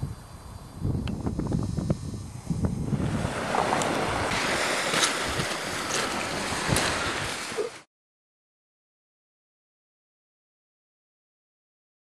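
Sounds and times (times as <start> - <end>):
wind on microphone: 0.0 - 7.8
waves washing on pebble beach: 3.0 - 7.9.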